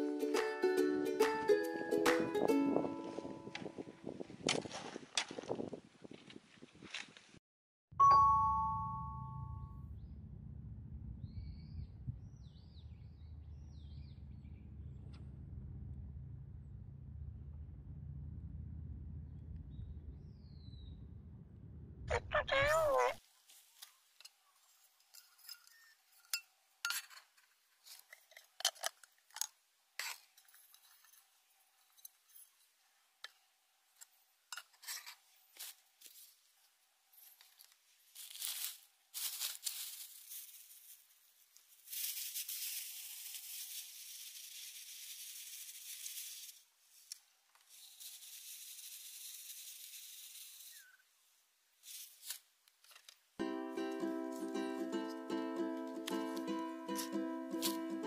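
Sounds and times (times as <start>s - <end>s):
rustling: 37.1s - 51.0s, 51.8s - 53.2s.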